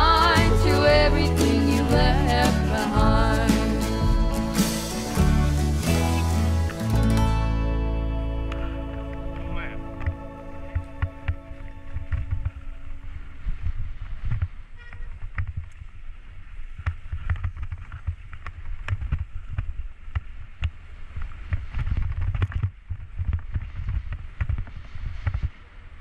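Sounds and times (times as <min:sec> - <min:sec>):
rumble riding over snow: 0:08.6 - 0:26.0
wind buffeting microphone: 0:09.0 - 0:26.0.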